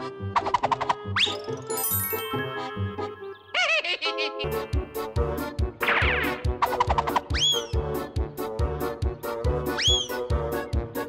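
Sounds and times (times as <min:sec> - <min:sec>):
cartoon background music: 0:00.0 - 0:11.0
twinkling chime shimmer: 0:01.7 - 0:02.9.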